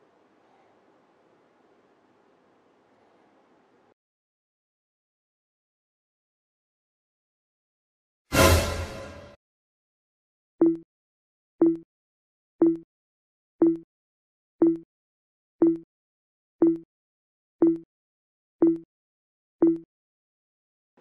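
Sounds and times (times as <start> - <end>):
timer ticks: 10.6 - 10.8, 11.6 - 11.8, 12.6 - 12.8, 13.6 - 13.8, 14.6 - 14.8, 15.6 - 15.8, 16.6 - 16.9, 17.6 - 17.9, 18.6 - 18.9, 19.6 - 19.9.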